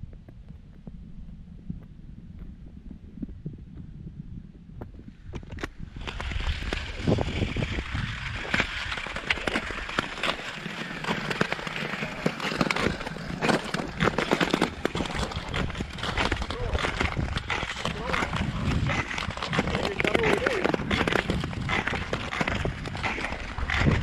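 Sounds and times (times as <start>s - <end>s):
ice clicks and crackles: 5.2s - 24.0s
ice skates scraping on ice: 5.2s - 24.0s.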